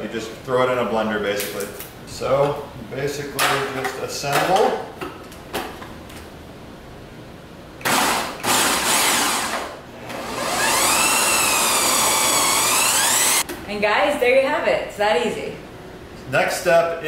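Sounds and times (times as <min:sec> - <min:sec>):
food processor motor whining: 0:07.9 - 0:13.4.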